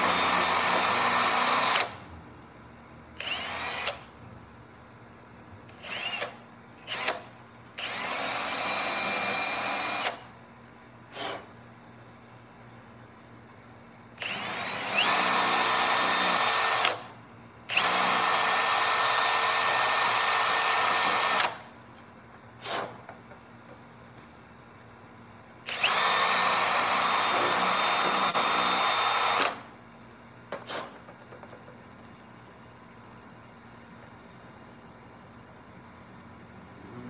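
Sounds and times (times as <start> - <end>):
cordless drill whining: 0.0 - 2.0, 3.2 - 4.1, 5.7 - 10.3, 14.2 - 17.1, 17.7 - 21.6, 25.7 - 29.7.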